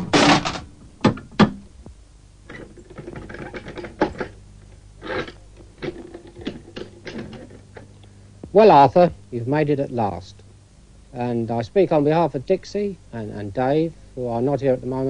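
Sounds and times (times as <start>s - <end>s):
bolts and latches clacking: 2.5s - 4.4s.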